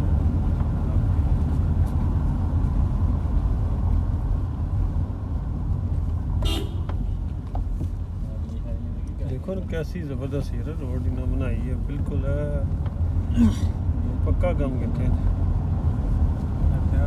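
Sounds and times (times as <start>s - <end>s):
car engine and tyre rumble: 0.0s - 17.0s
car horn toot: 6.4s - 7.2s.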